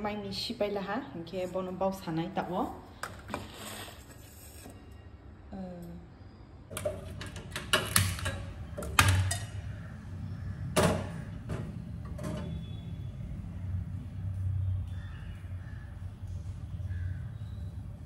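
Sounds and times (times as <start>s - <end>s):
cooking pots and utensils clanking: 6.7s - 9.7s.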